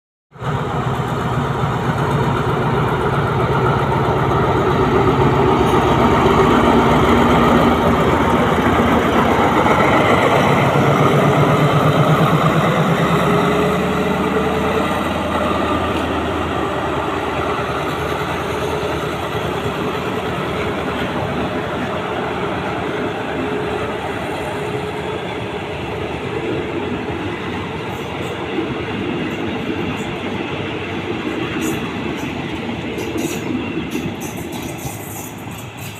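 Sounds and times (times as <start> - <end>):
diesel locomotive engine: 0.3 - 35.9
train coaches rolling on rails: 0.4 - 35.9.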